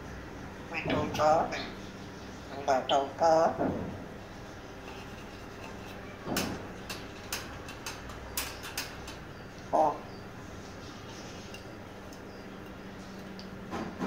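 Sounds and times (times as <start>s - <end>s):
parrot clicks and knocks: 6.3s - 9.2s.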